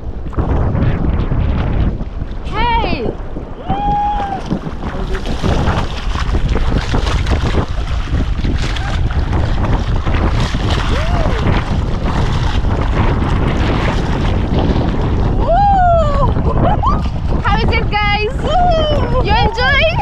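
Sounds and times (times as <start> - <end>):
wind rumbling on microphone: 0.0 - 20.0
water splashing around swimmer: 0.3 - 20.0.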